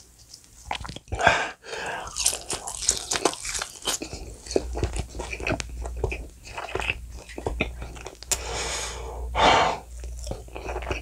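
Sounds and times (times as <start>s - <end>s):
crackly wet chewing: 0.0s - 8.4s, 9.9s - 11.0s
crunching bite into fried chicken: 2.0s - 7.0s.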